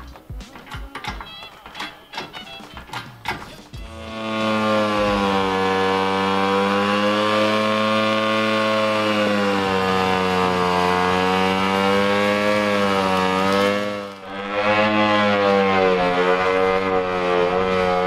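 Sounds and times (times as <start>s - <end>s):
motorcycle engine revving high: 3.8s - 18.0s.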